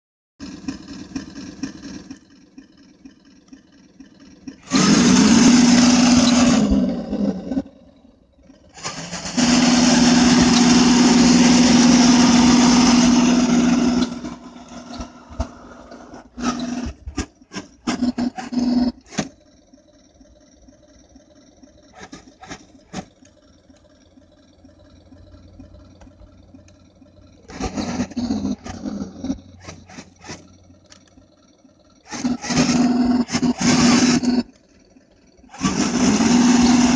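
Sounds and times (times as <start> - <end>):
toy tank motor humming: 0.4 - 36.9
short sharp bursts: 8.8 - 19.3, 32.1 - 34.4.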